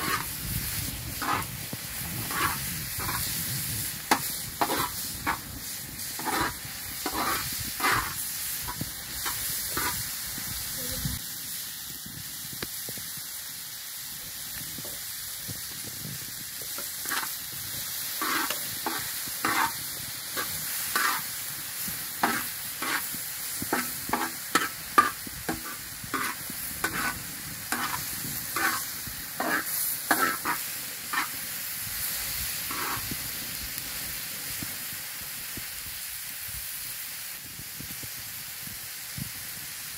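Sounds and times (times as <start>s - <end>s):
metal spoon scraping a pan: 0.0s - 10.1s, 16.7s - 17.4s, 18.1s - 31.4s, 32.7s - 33.2s
vegetables sizzling in a pan: 0.0s - 39.9s.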